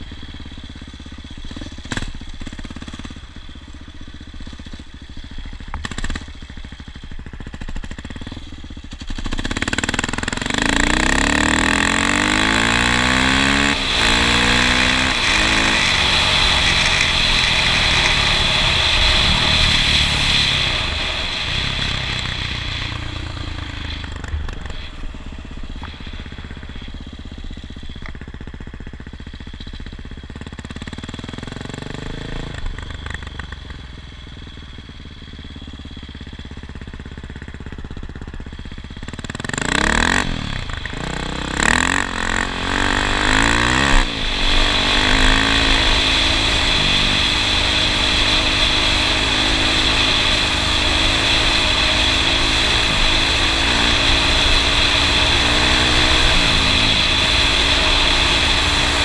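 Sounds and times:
vehicle engine running: 0.0 - 59.0
vehicle passing close by: 10.5 - 26.8, 41.6 - 59.0.

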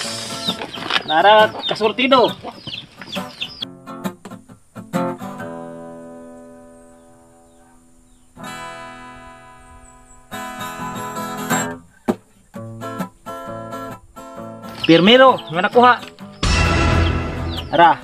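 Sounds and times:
acoustic guitar strumming: 0.0 - 7.7, 8.4 - 18.0.

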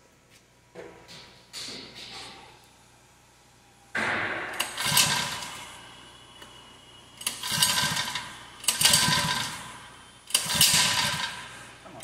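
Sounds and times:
small engine pull-start: 4.6 - 5.5, 7.2 - 9.6, 10.3 - 11.4.

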